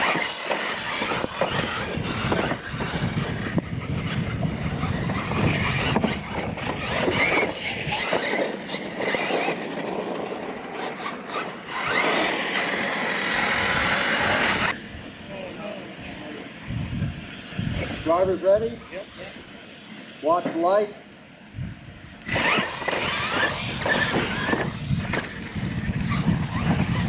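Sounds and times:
tyre and chassis noise: 0.0s - 15.1s, 22.2s - 27.0s
electric motors whining: 0.0s - 15.2s, 22.1s - 27.0s.

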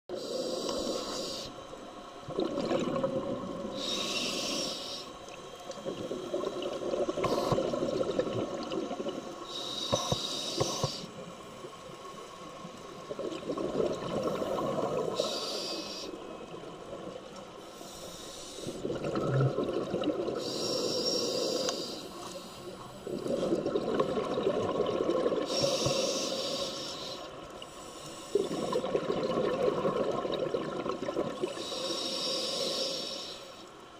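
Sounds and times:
regulator hiss on inhale: 0.1s - 2.2s, 3.6s - 13.2s, 14.1s - 18.9s, 20.3s - 23.5s, 25.2s - 29.0s, 31.4s - 33.9s
exhaled air bubbling: 2.2s - 4.6s, 5.3s - 11.2s, 12.9s - 17.3s, 18.6s - 21.8s, 23.0s - 26.6s, 28.3s - 32.3s.

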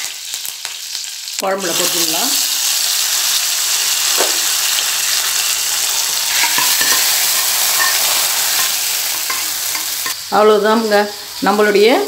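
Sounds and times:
hot oil sizzling: 0.0s - 12.0s
pan and spoon clicks: 6.3s - 10.2s.

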